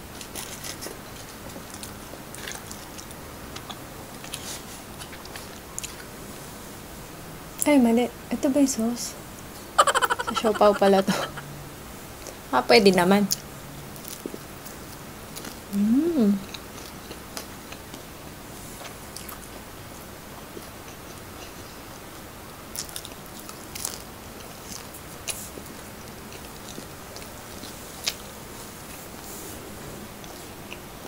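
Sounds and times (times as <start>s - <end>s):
crunchy chewing: 0.1s - 6.1s, 14.0s - 15.6s, 16.4s - 18.1s, 22.7s - 29.2s
person humming mmm: 15.7s - 16.5s.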